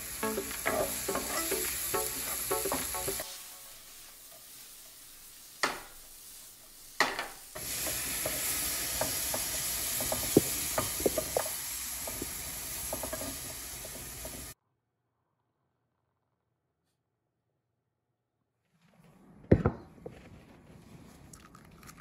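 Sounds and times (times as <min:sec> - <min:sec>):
vegetables sizzling in a frying pan: 0:00.0 - 0:14.6
spatula scraping a pan: 0:00.2 - 0:14.6.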